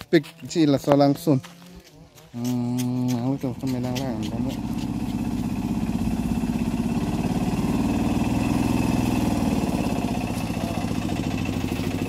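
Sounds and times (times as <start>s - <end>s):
small engine putter under load: 1.8s - 6.1s.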